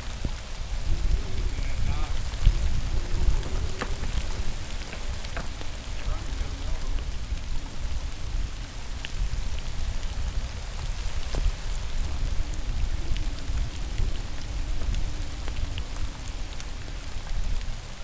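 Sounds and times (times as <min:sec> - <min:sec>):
raindrops ticking close by: 0:00.0 - 0:18.0
steady rain: 0:00.0 - 0:18.0
wind buffeting microphone: 0:00.0 - 0:18.0.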